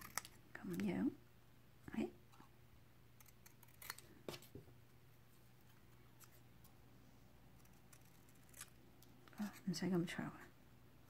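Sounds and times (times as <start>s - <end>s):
scissors snipping paper: 0.0s - 0.9s, 3.2s - 4.0s, 7.6s - 9.6s.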